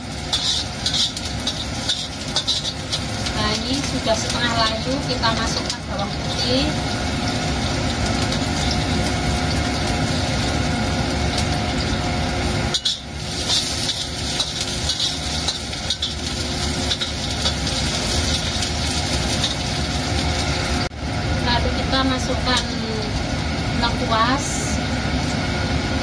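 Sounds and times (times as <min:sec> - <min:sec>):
metal spatula scraping wok: 0:00.0 - 0:06.7, 0:11.4 - 0:20.5
sizzling in hot oil: 0:00.0 - 0:26.0
steady mechanical hum: 0:00.0 - 0:26.0.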